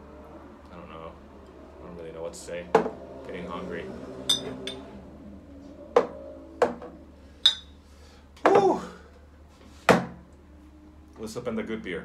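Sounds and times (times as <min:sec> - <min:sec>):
glass bottles clinking on table: 0:04.3 - 0:04.8, 0:07.5 - 0:07.7.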